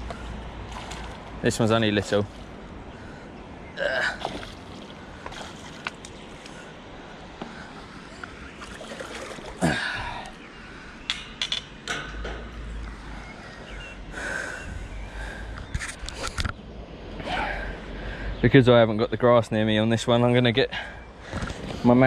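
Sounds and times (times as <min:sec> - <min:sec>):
water splashing and sloshing: 0:00.0 - 0:10.9.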